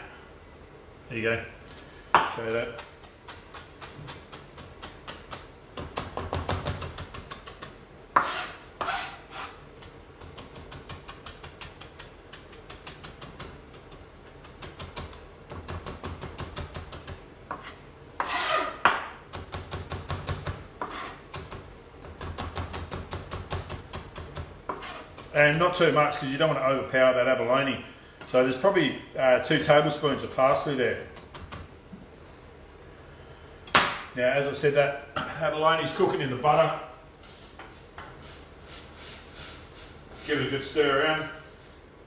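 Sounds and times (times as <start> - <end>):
knife chopping on plastic board: 2.2 - 8.4
knife blade scraping board: 8.2 - 9.6, 17.5 - 18.9, 20.8 - 21.3, 24.7 - 25.2.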